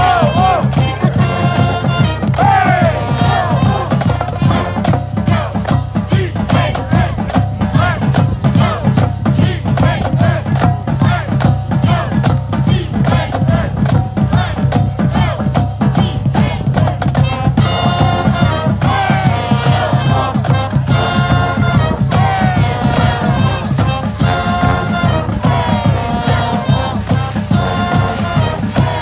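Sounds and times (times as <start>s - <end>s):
sousaphones and horns held notes: 0.0s - 5.0s, 17.2s - 29.0s
drumline: 0.0s - 29.0s
marching band playing: 0.0s - 29.0s
people chanting: 0.0s - 29.0s.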